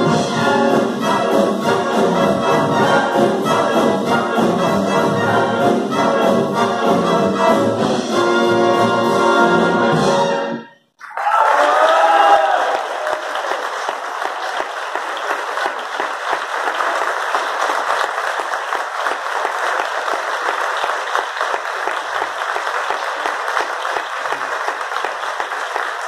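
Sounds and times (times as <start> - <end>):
brass band chord: 0.0 - 10.7
audience applauding: 11.0 - 26.0.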